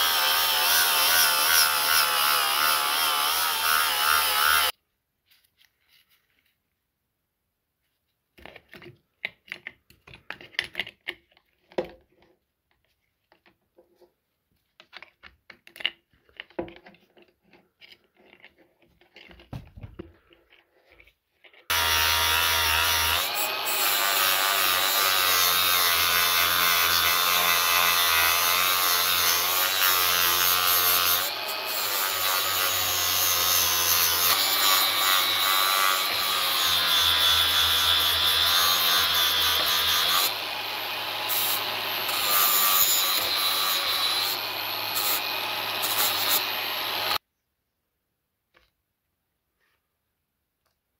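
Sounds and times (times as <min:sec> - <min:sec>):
angle grinder grinding metal: 0:00.0 - 0:04.8, 0:21.6 - 0:47.2.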